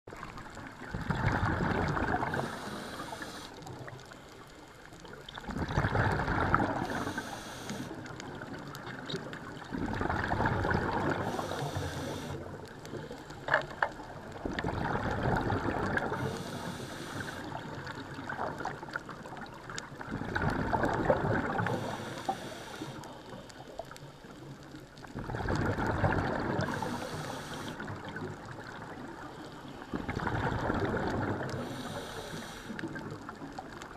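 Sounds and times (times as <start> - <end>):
bubbling exhalation underwater: 0.8 - 2.6, 5.4 - 7.1, 9.1 - 11.5, 14.4 - 16.3, 20.0 - 21.9, 25.2 - 27.0, 30.0 - 31.7
regulator valve hiss: 2.4 - 3.6, 6.8 - 7.9, 11.2 - 12.4, 16.2 - 17.4, 21.8 - 23.0, 26.7 - 27.8, 31.6 - 32.8.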